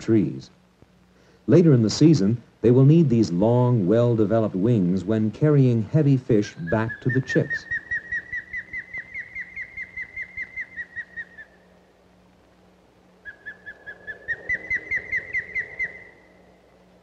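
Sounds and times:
osprey calling sharp whistles: 6.5 - 11.8, 13.2 - 16.6.

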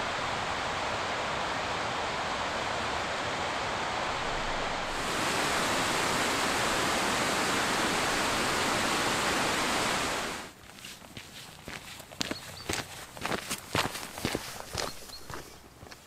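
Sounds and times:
stream rushing over rocks: 0.0 - 10.6.

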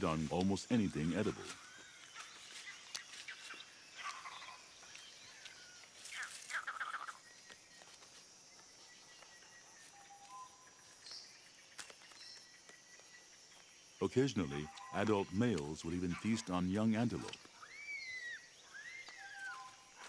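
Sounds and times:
bird calls: 0.0 - 20.0
bird trill: 14.3 - 20.0.

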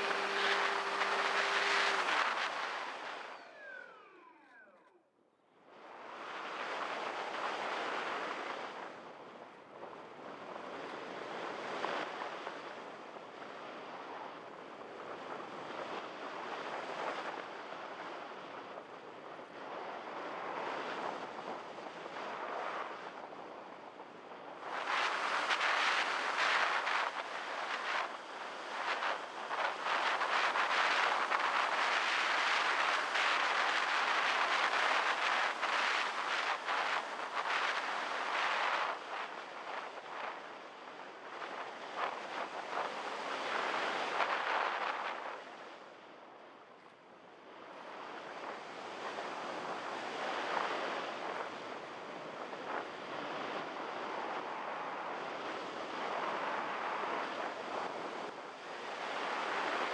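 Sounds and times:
electric motor whine: 0.0 - 5.1.

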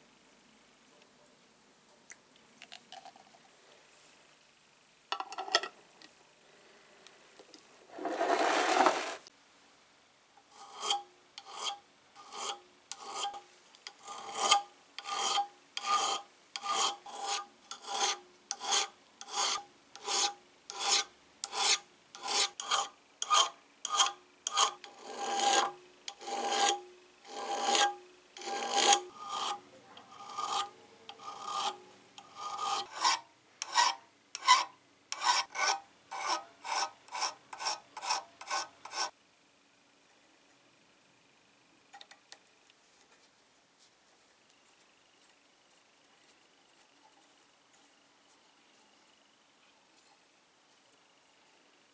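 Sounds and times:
hand file rasping on metal: 10.5 - 13.4, 14.0 - 39.1.

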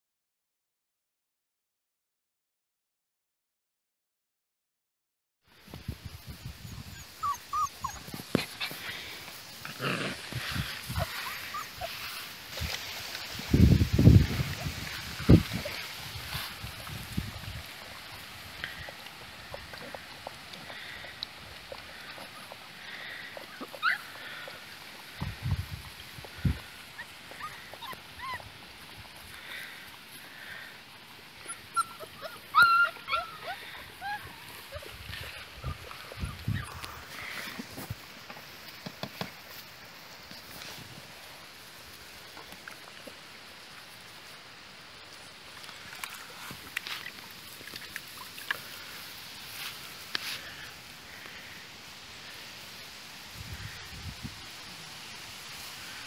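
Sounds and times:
rustling in grass: 5.6 - 56.0
puppies whimpering and yipping: 6.6 - 9.2, 9.8 - 12.4, 18.8 - 24.7, 26.5 - 29.7, 31.4 - 37.5.

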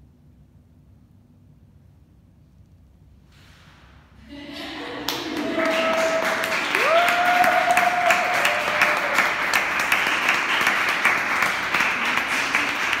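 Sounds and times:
high whooping cheer: 4.3 - 11.1
people clapping: 4.3 - 13.0.

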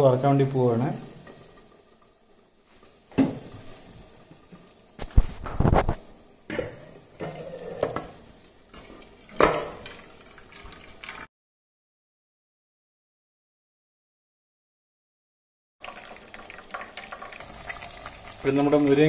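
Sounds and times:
water pouring into metal bowl: 8.7 - 11.3, 15.8 - 19.0
metal pot and lid clattering: 8.8 - 10.1.

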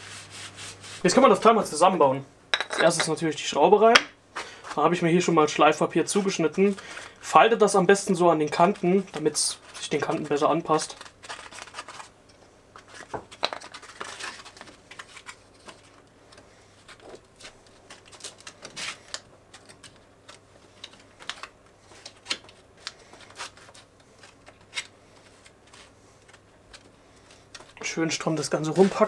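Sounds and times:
sandpaper rustling and crinkling: 8.5 - 12.1, 27.2 - 29.0.

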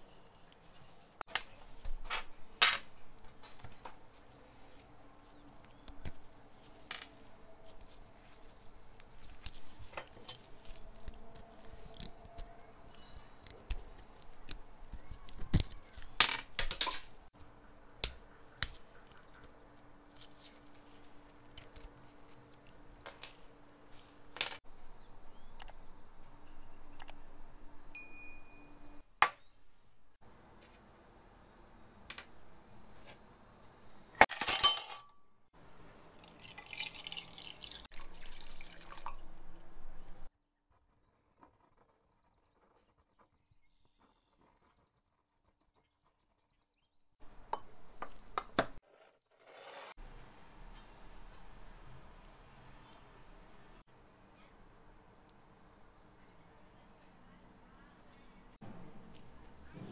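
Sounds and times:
small metal parts clinking: 7.8 - 17.1.

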